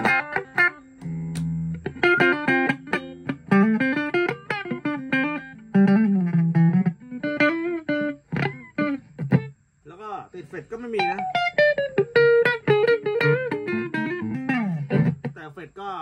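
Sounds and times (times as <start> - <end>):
clean electric guitar notes: 11.0 - 15.3.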